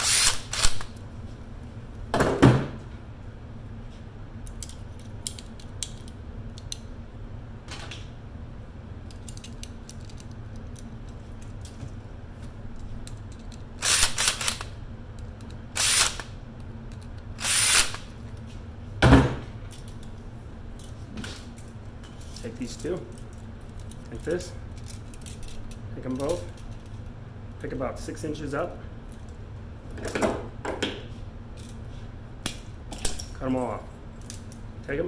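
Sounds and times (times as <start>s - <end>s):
cordless drill running: 0.0s - 0.8s, 13.8s - 14.7s, 15.8s - 16.2s, 17.4s - 18.0s
small metal parts clicking: 9.1s - 11.8s.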